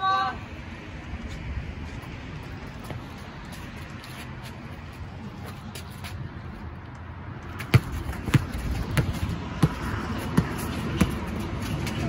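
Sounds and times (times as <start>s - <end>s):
basketball bouncing on concrete: 7.6s - 12.0s.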